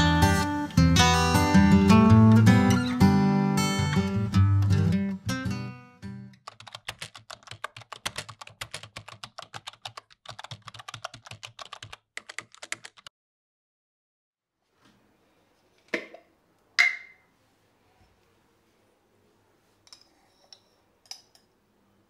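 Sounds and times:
acoustic guitar music: 0:00.0 - 0:06.4
keyboard typing clicks: 0:06.4 - 0:13.1.

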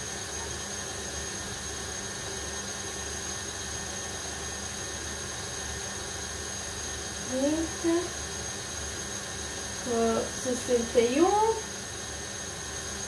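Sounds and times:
electric stand mixer whirring: 0:00.0 - 0:07.4.

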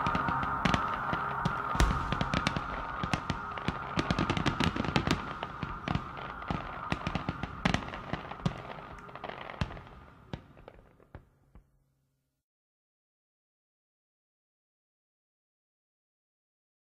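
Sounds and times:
fireworks crackling and popping: 0:00.0 - 0:11.3.

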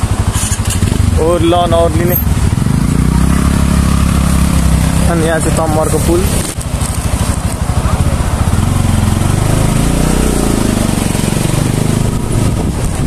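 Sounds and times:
scooter engine running: 0:00.0 - 0:13.0
wind on microphone: 0:06.0 - 0:13.0.

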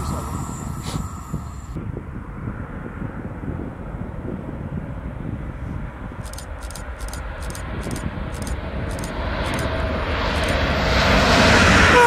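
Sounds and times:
high-speed train rushing: 0:00.0 - 0:02.4, 0:06.2 - 0:12.0
wind rumble on microphone: 0:00.0 - 0:12.0.

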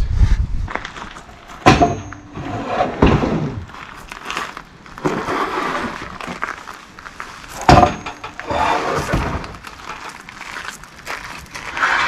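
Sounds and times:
wooden boards knocking and scraping: 0:01.6 - 0:03.7, 0:07.6 - 0:10.1.

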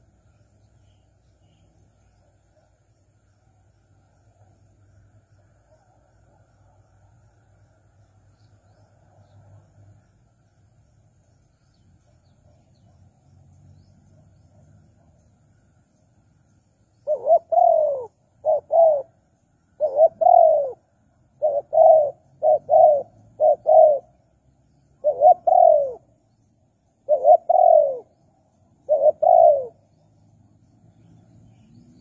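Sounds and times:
dove cooing: 0:17.0 - 0:19.2, 0:19.8 - 0:24.2, 0:25.0 - 0:26.1, 0:27.0 - 0:28.2, 0:28.8 - 0:29.9.

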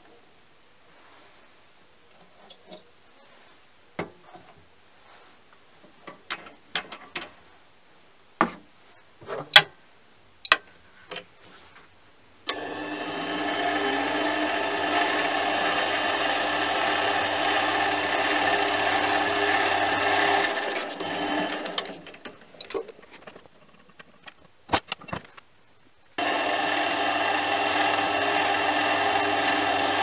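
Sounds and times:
lathe motor whining: 0:12.5 - 0:22.3, 0:26.2 - 0:30.0.

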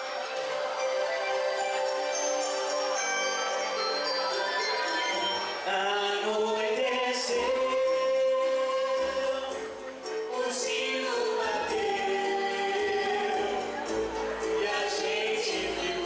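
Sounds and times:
man and woman singing: 0:05.7 - 0:16.0.

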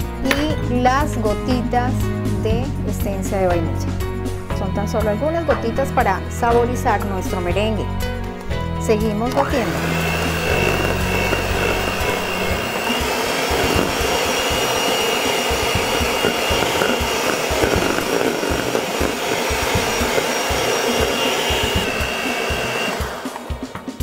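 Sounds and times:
electric hand mixer whipping: 0:09.0 - 0:24.0.

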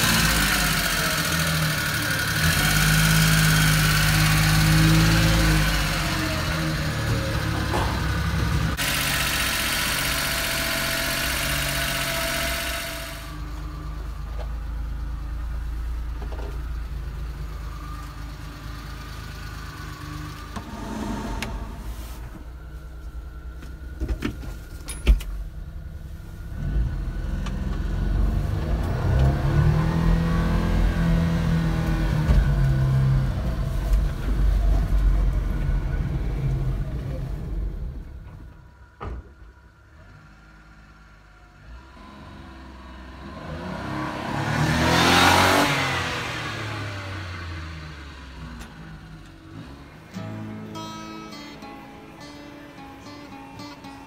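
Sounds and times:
small truck engine running: 0:00.0 - 0:43.7
loud rushing hiss: 0:20.6 - 0:23.0.

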